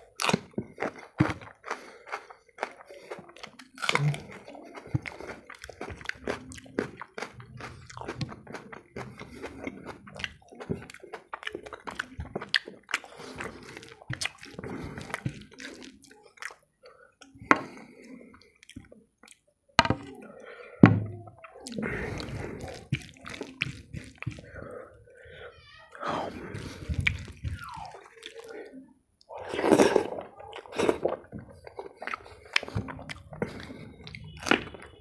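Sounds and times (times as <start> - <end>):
fingers squishing rice: 21.6 - 24.7.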